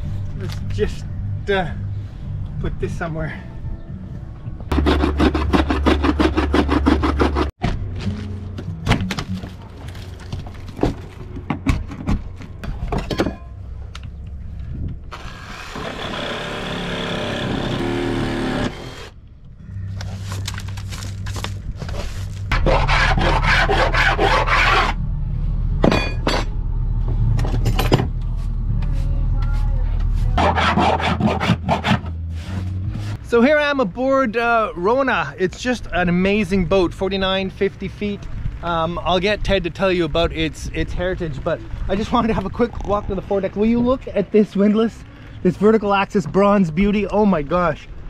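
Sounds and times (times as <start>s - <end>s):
wood cracking and scraping: 8.8s - 13.2s, 19.9s - 24.8s
power tool running: 15.1s - 19.2s.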